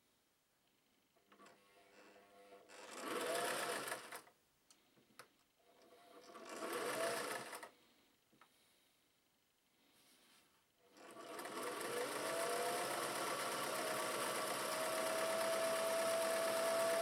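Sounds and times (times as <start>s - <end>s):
sewing machine stitching: 1.3s - 4.3s, 5.7s - 7.8s, 10.8s - 17.0s.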